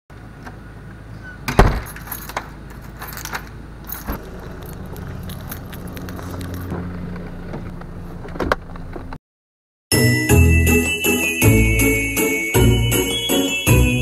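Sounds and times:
keys jangling in a door lock: 0:01.8 - 0:06.7.

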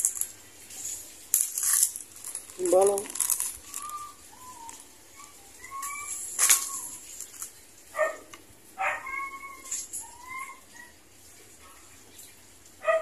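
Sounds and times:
animal yelps: 0:03.6 - 0:07.0, 0:08.8 - 0:11.0.

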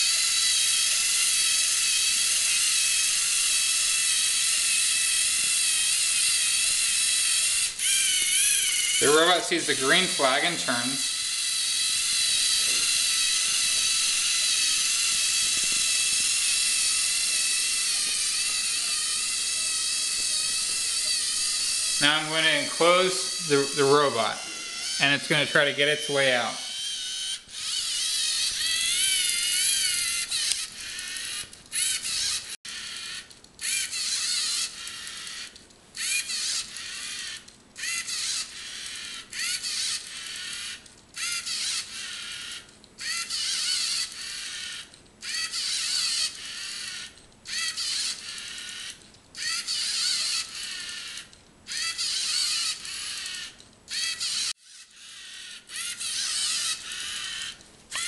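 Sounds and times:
robot motors whining: 0:00.0 - 0:58.0.

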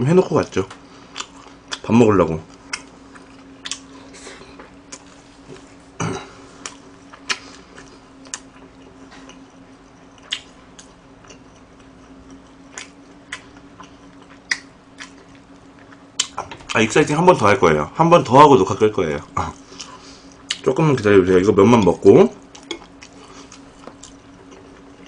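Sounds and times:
faint steady hum: 0:00.0 - 0:25.0
chewing: 0:00.7 - 0:01.9, 0:02.5 - 0:05.7, 0:06.6 - 0:16.4, 0:22.4 - 0:25.0.

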